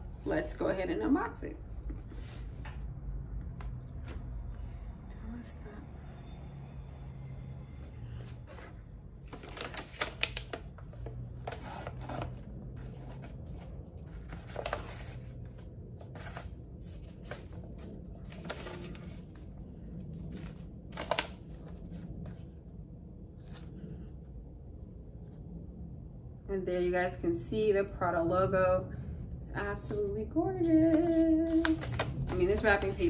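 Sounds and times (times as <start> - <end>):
wrapping paper rustling: 8.4 - 22.2, 31.0 - 33.0.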